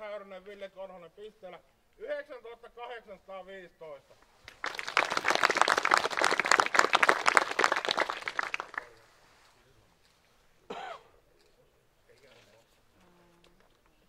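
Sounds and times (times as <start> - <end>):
crowd clapping: 4.4 - 9.0.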